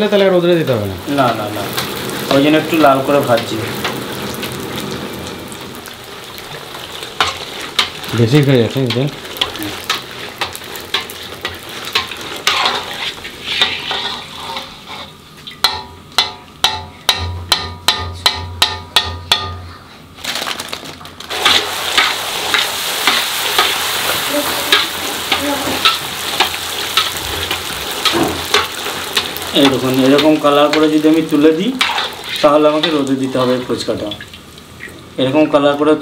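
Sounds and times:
food deep-frying in oil: 0.0s - 19.5s, 20.2s - 36.0s
metal skimmer scraping pan: 9.4s - 15.9s.

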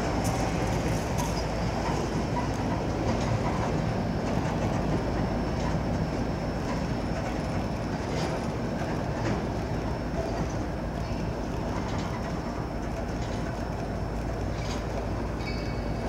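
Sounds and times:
freight train rumbling past: 0.0s - 16.0s
wheel clicks over rail joints: 0.2s - 16.0s.

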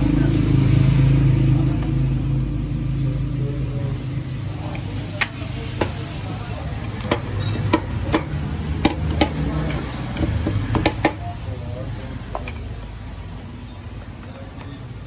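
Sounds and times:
steady low rumble: 0.0s - 7.2s
metal ladle knocking on pot: 7.0s - 11.2s.

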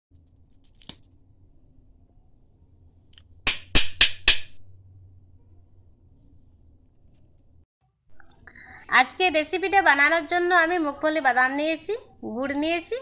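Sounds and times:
brittle candy cracking: 0.3s - 1.2s.

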